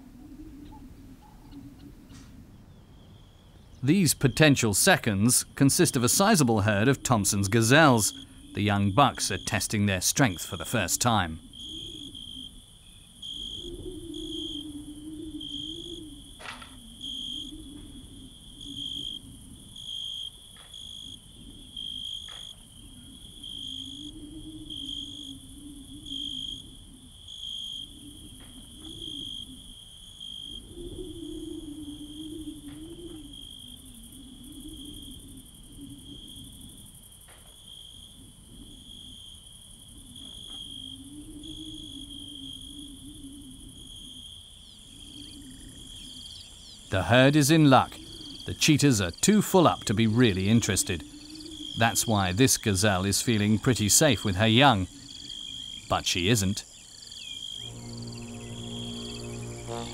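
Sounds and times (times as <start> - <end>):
insects chirping: 0.0 - 59.9
low wavering hum: 57.6 - 59.9.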